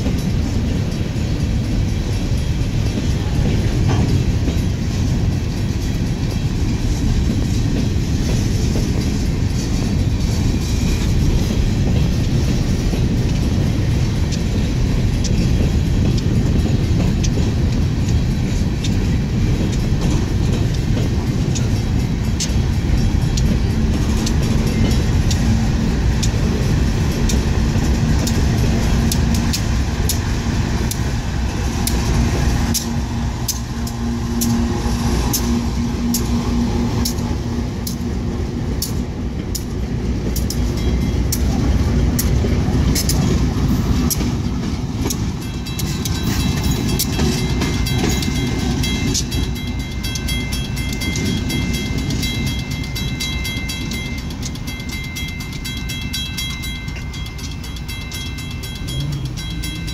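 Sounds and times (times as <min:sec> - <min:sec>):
train rumbling: 0:00.0 - 0:59.9
wheels clicking over rails: 0:00.0 - 0:59.9
high pulsing ringing: 0:43.1 - 0:59.9.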